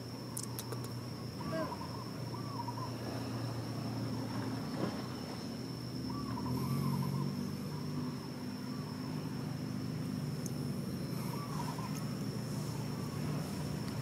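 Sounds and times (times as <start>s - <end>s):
low mechanical hum: 0.0s - 14.0s
bird's wavering call: 1.4s - 3.2s, 6.0s - 9.3s, 11.0s - 13.7s.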